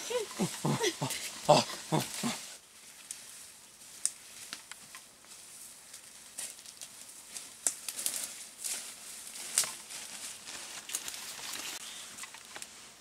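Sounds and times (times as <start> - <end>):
footsteps on dry leaves: 5.2 - 11.8.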